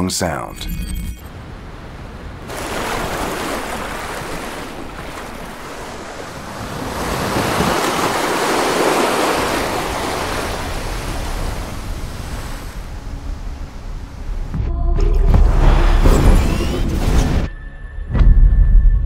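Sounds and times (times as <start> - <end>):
ocean waves breaking: 1.3 - 14.6.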